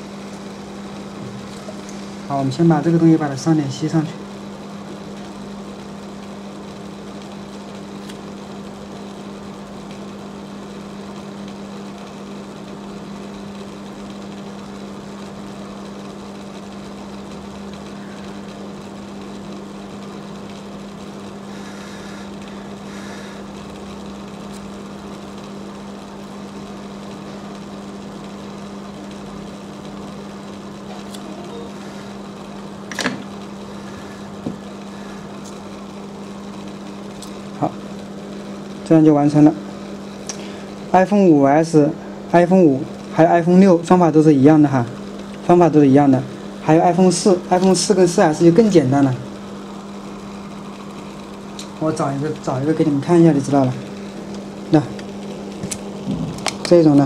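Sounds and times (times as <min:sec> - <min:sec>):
low machine hum: 0:00.0 - 0:57.0.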